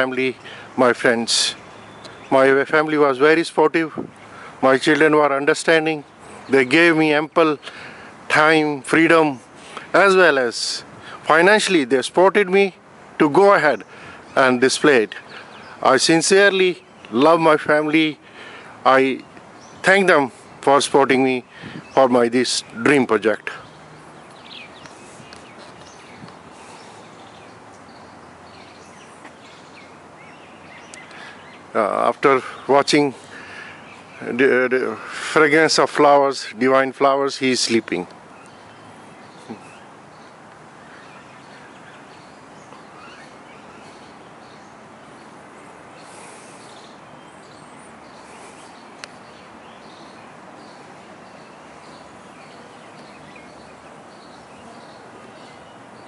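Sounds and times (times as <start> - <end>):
small birds chirping: 0.0 - 56.0
steady background hiss: 0.0 - 56.0
small bird chirps: 23.6 - 31.7, 38.3 - 56.0.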